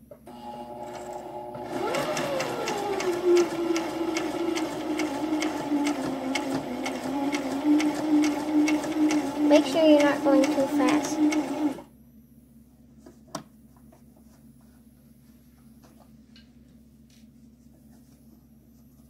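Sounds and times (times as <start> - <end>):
sewing machine motor running: 0.7 - 11.9.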